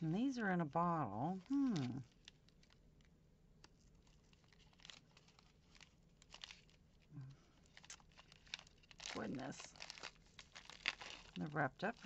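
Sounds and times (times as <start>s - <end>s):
plastic bag crinkling: 1.1s - 12.0s.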